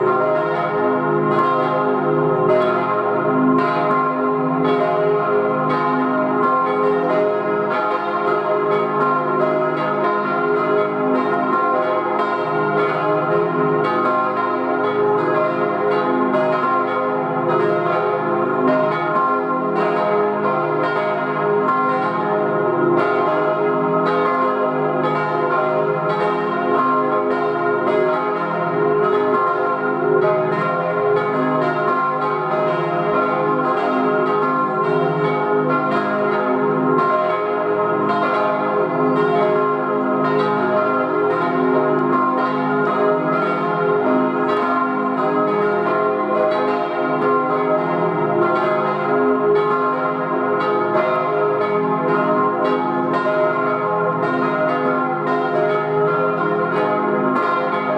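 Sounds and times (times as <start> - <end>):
church bells ringing: 0.0 - 57.9.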